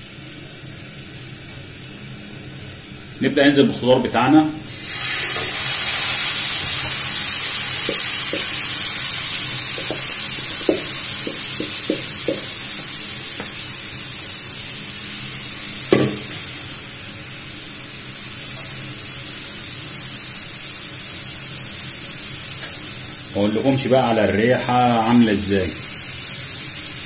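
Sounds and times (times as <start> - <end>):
vegetables sizzling in a frying pan: 0.0 - 3.2, 4.7 - 27.0
spatula knocking on bowl and pan: 9.8 - 12.5, 15.9 - 16.4.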